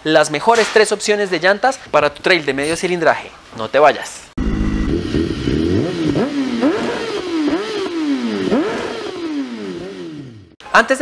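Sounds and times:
motorcycle engine accelerating: 0:04.4 - 0:10.6.

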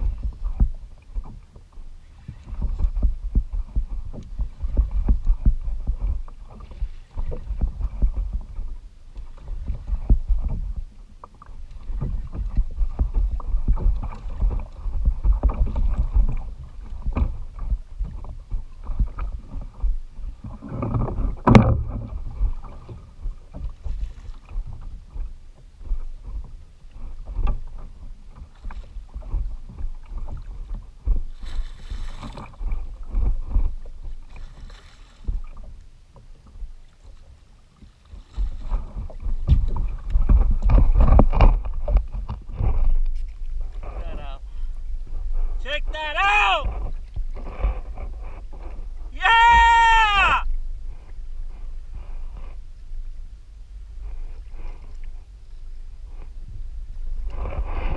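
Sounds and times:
wind buffeting microphone: 0:00.0 - 0:35.7, 0:37.8 - 0:45.7
water lapping against plastic hull: 0:00.0 - 0:57.9.

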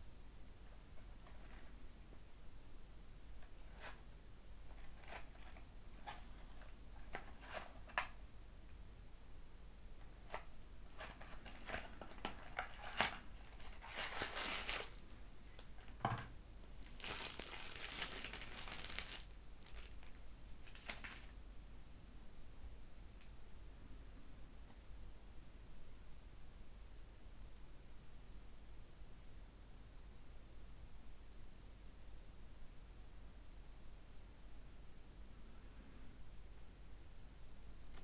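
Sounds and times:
packaging rustling: 0:04.7 - 0:08.2, 0:10.3 - 0:16.0, 0:16.8 - 0:21.4.

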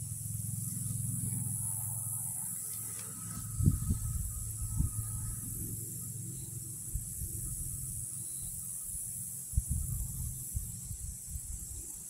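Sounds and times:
steady high hiss: 0:00.0 - 0:12.0
wind rumbling on microphone: 0:03.3 - 0:05.9, 0:06.8 - 0:12.0.

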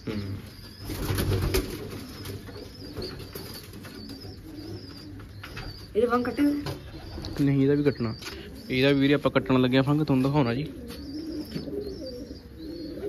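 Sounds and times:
pigeons cooing: 0:00.0 - 0:13.0
wings flapping: 0:00.8 - 0:04.2.

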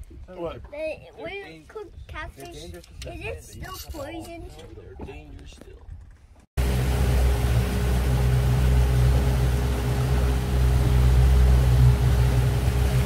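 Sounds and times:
boat motor humming: 0:06.6 - 0:13.0
water against hull: 0:06.6 - 0:13.0.

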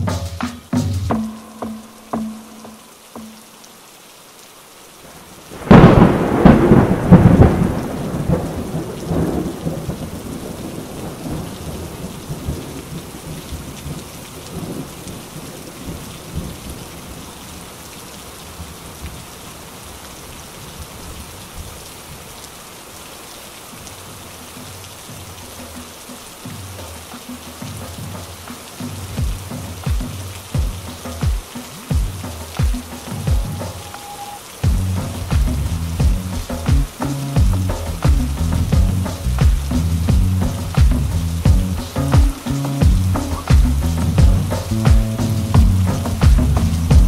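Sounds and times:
steady rain: 0:00.0 - 0:47.0
rolling thunderclap: 0:05.5 - 0:17.2, 0:34.6 - 0:47.0.

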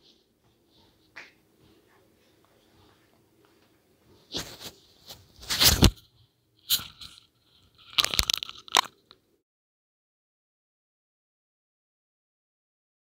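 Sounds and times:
crunching and crackling: 0:06.7 - 0:09.2.

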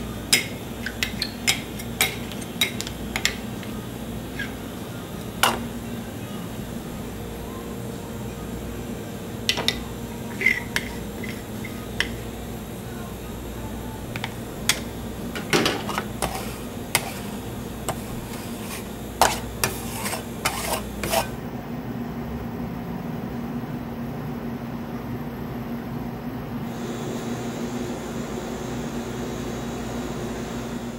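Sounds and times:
low machine hum: 0:00.0 - 0:30.9
metal spatulas tapping on stone: 0:00.3 - 0:03.7, 0:09.5 - 0:12.2.

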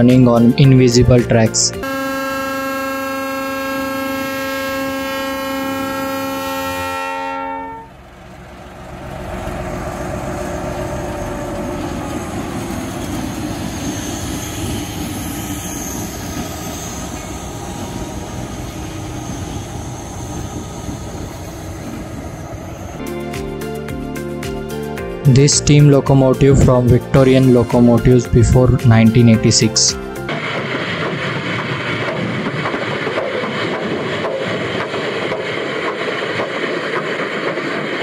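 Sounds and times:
locomotive horn chord: 0:01.8 - 0:08.3
locomotive engine and wheels passing: 0:01.9 - 0:23.1, 0:25.5 - 0:38.0.

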